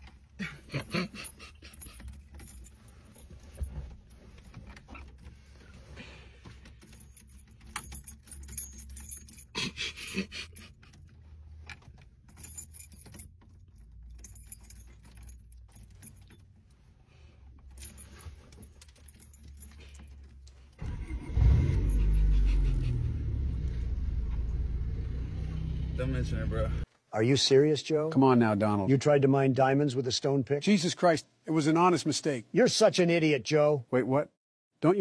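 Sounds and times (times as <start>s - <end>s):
car keys jangling in ignition: 0.0s - 5.8s, 6.4s - 23.0s
car engine starting and running: 20.7s - 26.8s.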